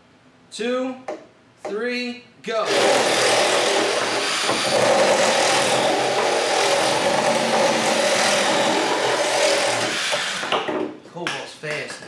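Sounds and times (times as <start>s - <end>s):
reciprocating saws cutting pipe: 2.7s - 10.6s.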